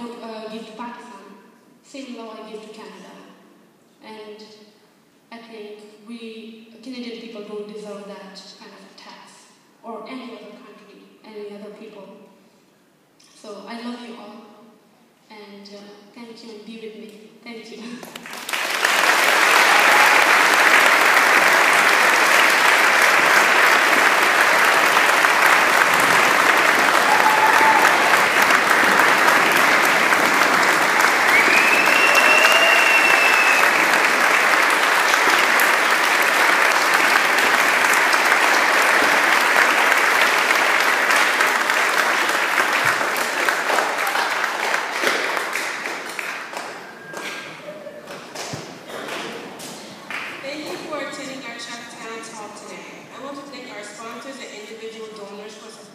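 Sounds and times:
audience applauding: 18.2s - 50.4s.

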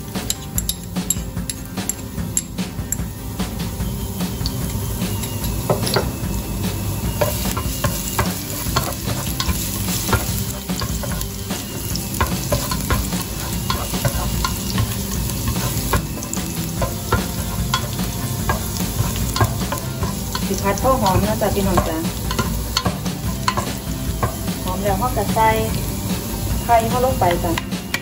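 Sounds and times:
garlic sizzling in oil: 0.0s - 28.0s
spatula scraping metal pot: 7.0s - 24.9s.

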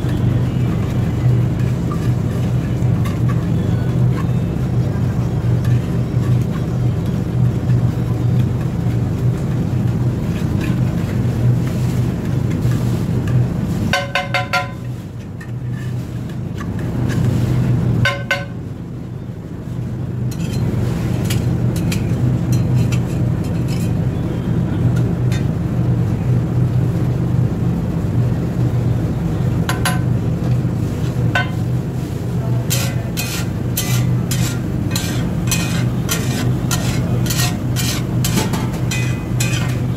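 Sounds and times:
steel masher pounding and scraping: 0.0s - 9.0s, 10.2s - 18.6s, 20.3s - 24.0s, 31.0s - 31.7s, 32.4s - 39.9s
spatula tapping and scraping: 0.0s - 18.6s, 20.3s - 24.0s, 31.4s - 31.7s, 32.6s - 39.9s
steady low hum: 0.0s - 39.9s.

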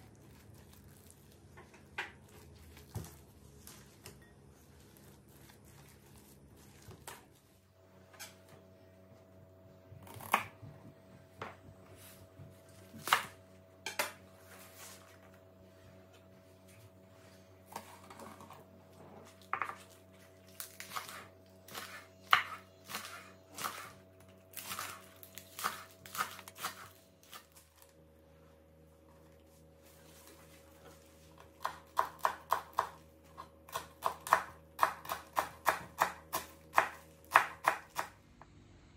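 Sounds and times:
knife chopping on wooden board: 20.9s - 23.9s, 31.6s - 38.1s.

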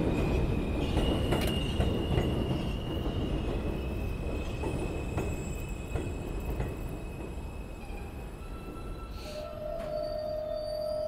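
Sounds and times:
wheels clacking over rail joints: 0.0s - 7.4s
train rumble: 0.0s - 11.0s
high-pitched wheel squeal: 7.5s - 11.0s.

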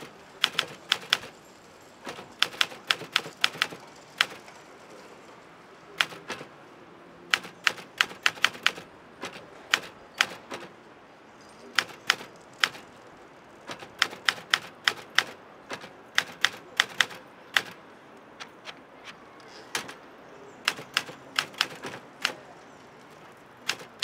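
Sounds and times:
typewriter key strikes: 2.0s - 4.4s, 7.3s - 10.7s, 11.8s - 12.8s, 13.7s - 17.8s, 19.7s - 20.0s, 20.7s - 22.4s, 23.6s - 24.0s.

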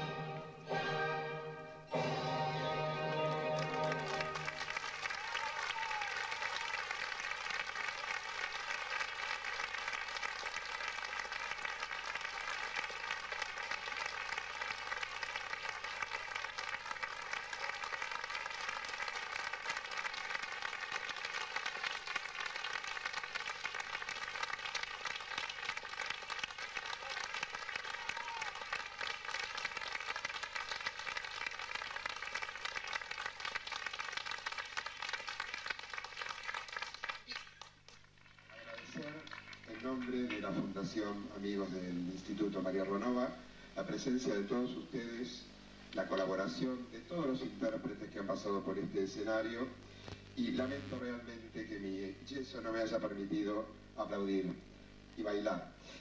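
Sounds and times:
audience applauding: 2.9s - 41.6s.

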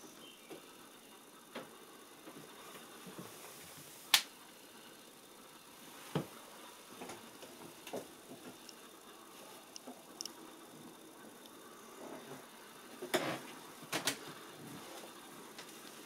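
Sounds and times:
sharp clicks: 9.7s - 10.4s.

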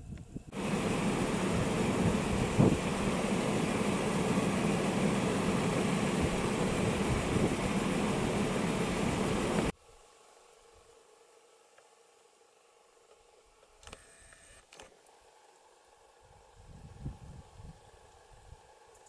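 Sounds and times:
vehicle engine idling: 0.4s - 9.7s.

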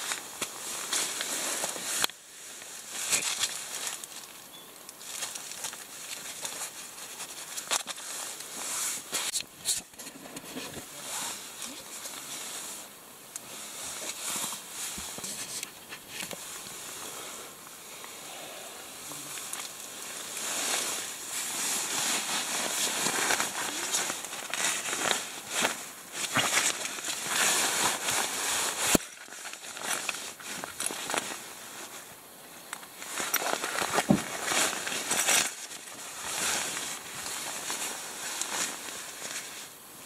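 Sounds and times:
nylon sleeping bag rustling: 0.0s - 40.0s
foil sheet crinkling: 19.4s - 32.0s, 32.8s - 39.7s.

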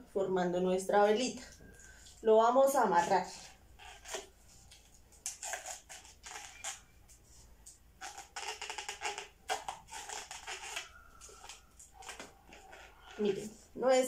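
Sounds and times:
balloon squeaking and rubbing: 2.8s - 4.4s, 5.3s - 7.1s, 8.0s - 13.8s.

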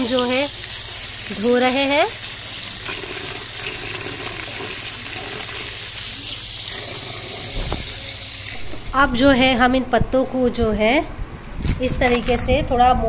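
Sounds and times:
water running over leaves: 0.0s - 8.7s.

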